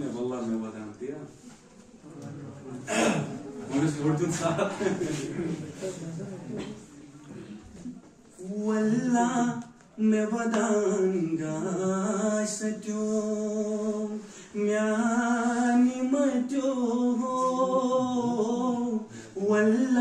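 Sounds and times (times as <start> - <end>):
man singing unaccompanied: 8.4 - 20.0.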